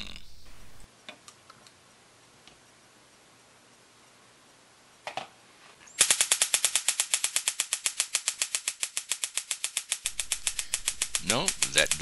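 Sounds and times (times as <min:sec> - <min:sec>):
stun gun crackling: 0:06.0 - 0:12.0.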